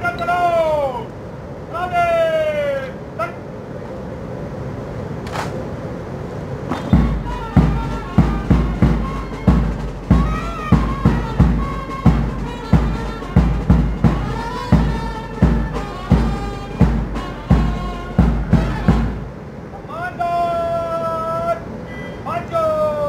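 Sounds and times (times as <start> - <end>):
wind instrument melody: 6.7 - 20.0
heavy bass drum beats: 6.9 - 19.4.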